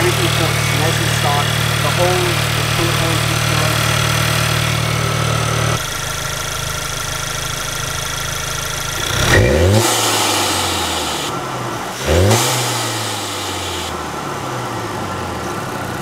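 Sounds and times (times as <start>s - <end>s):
engine revving on throttle blip: 0.0s - 6.7s, 8.8s - 16.0s
car engine idling: 0.0s - 16.0s.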